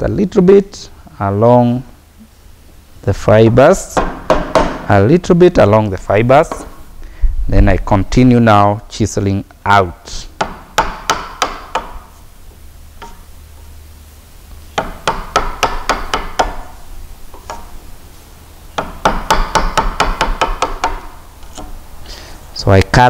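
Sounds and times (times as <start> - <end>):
mallet knocking on chisel: 4.0 - 4.9, 10.4 - 12.1, 13.0 - 13.3, 14.8 - 16.7, 17.3 - 17.8, 18.8 - 21.8.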